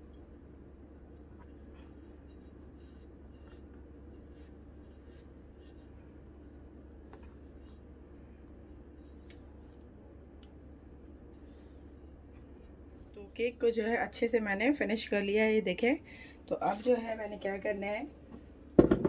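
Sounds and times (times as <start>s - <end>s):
steady low hum: 0.0s - 19.0s
metal scraper rubbing cream: 1.9s - 7.8s.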